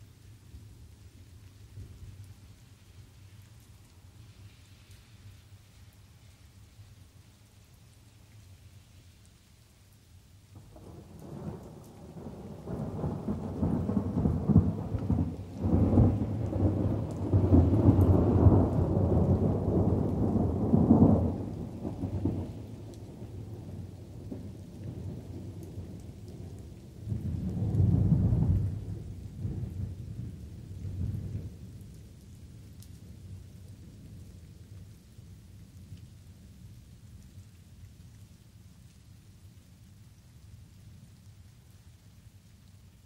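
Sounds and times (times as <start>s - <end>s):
light rain: 0.0s - 43.0s
thunder rumbling: 10.6s - 31.6s.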